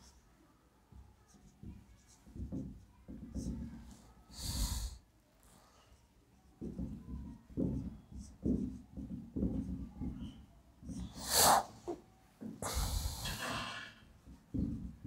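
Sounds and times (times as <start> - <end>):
marker writing on whiteboard: 0.0 - 0.3, 0.9 - 5.0, 5.8 - 12.9
breathy hiss: 4.3 - 5.0, 11.1 - 11.9, 12.6 - 14.1
sharp nose sniff: 11.1 - 11.8, 12.6 - 13.6.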